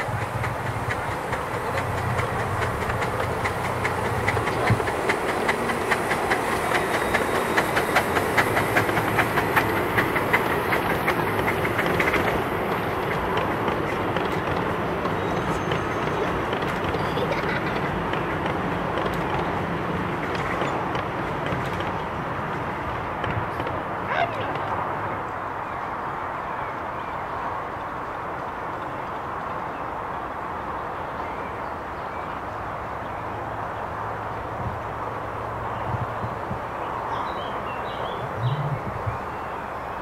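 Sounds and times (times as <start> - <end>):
train wheels clicking over rail joints: 0.0 - 24.9
train rolling rumble: 0.0 - 40.0.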